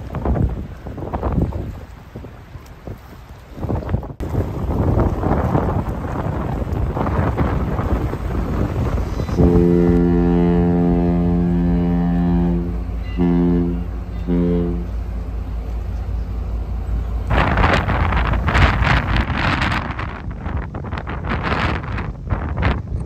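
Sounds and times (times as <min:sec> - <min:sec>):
wind buffeting microphone: 0:00.0 - 0:23.0
ship horn blasts: 0:08.5 - 0:18.7.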